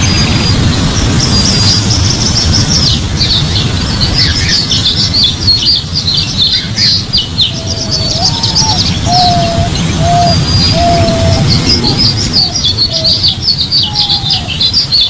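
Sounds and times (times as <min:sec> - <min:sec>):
birds chirping: 0:00.0 - 0:15.0
steady low rumble: 0:00.0 - 0:15.0.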